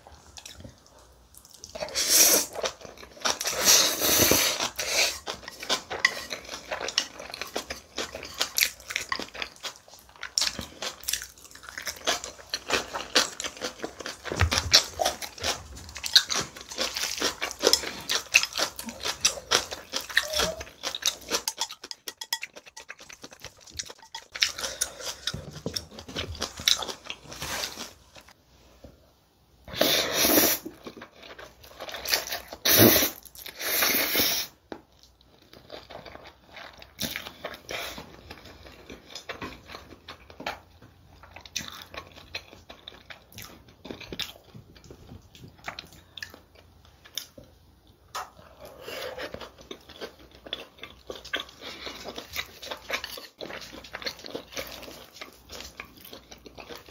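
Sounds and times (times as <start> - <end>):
noodles being slurped: 1.8 - 7.6.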